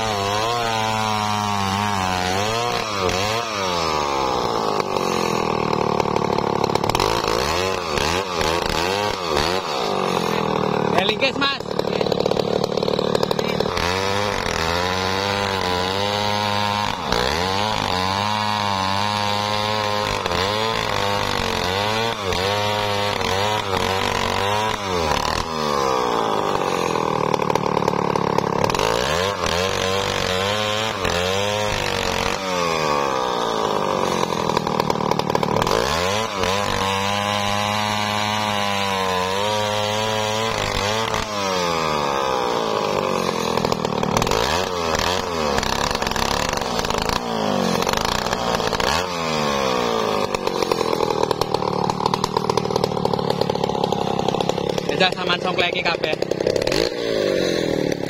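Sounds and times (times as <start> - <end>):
chainsaw cutting through log: 0.0 - 58.0.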